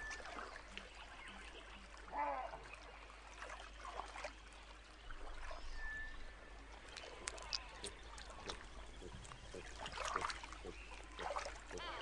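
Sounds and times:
water sloshing and trickling: 0:00.0 - 0:12.0
thin whistle: 0:05.7 - 0:06.3.

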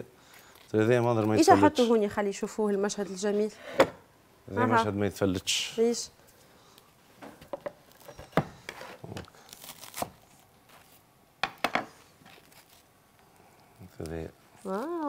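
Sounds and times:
knife crunching toasted bread: 0:09.3 - 0:10.9.

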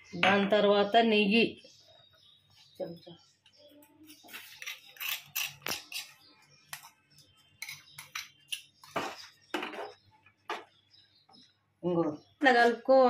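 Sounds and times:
spoon scraping metal pot: 0:04.0 - 0:10.0.

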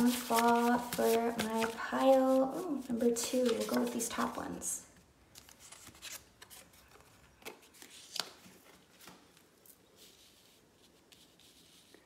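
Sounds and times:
paper cards tapping and rustling: 0:00.0 - 0:04.4.

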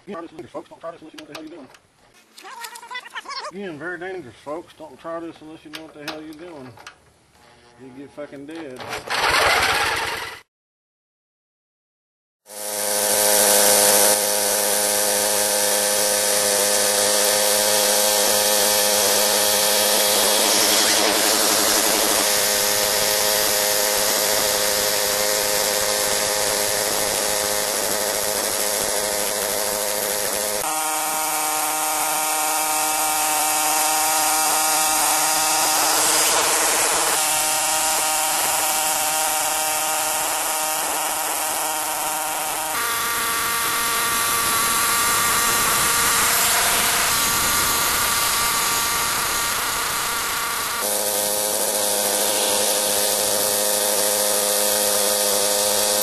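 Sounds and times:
tiller engine running: 0:08.8 - 0:10.4, 0:12.5 - 0:56.0
tines digging through turf: 0:50.8 - 0:56.0.

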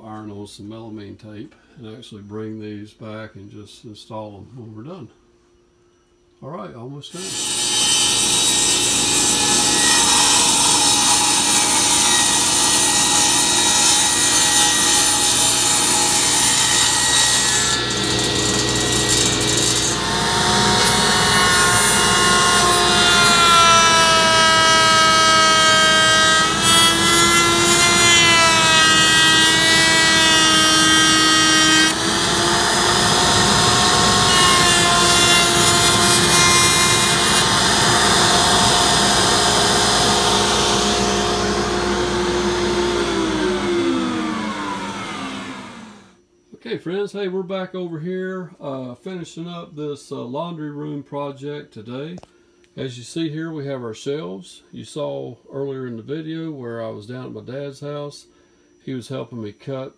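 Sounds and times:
router whining cutting board: 0:07.2 - 0:46.2.

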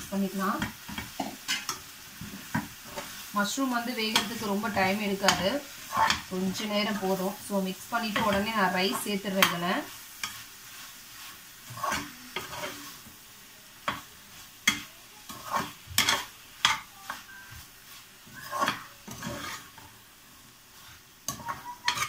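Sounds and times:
faint frying sizzle: 0:00.0 - 0:22.0
spatula scraping metal pot: 0:04.1 - 0:07.2, 0:11.7 - 0:13.0, 0:14.7 - 0:17.3, 0:18.2 - 0:19.8, 0:21.3 - 0:22.0.

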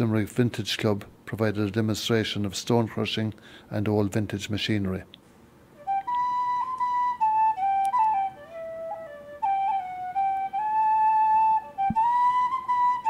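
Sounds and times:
solo flute melody: 0:05.8 - 0:13.0.

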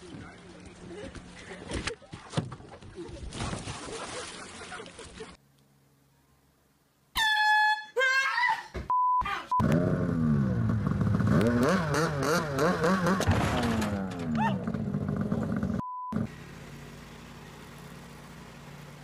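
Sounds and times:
person crying out startled: 0:07.5 - 0:09.5.

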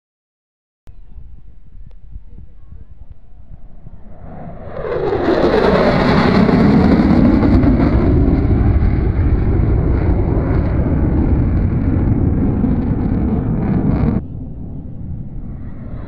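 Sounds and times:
wind buffeting microphone: 0:00.9 - 0:16.0
fighter jets flying overhead: 0:02.6 - 0:16.0.

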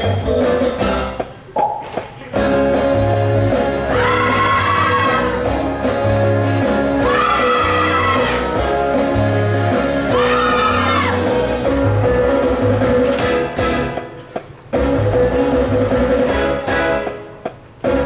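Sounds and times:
band playing up-tempo music: 0:00.0 - 0:18.0
pulsing bass line: 0:11.1 - 0:13.2.

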